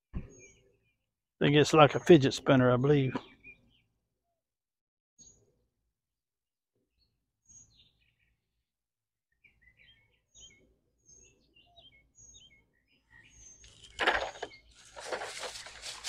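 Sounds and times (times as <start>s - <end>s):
faint birds chirping: 0.2s - 4.4s, 6.8s - 8.6s, 9.3s - 16.0s.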